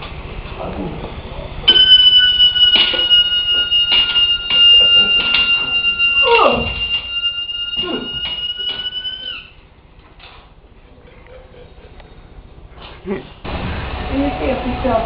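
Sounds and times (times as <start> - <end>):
balloon toy whistling: 1.7 - 9.6.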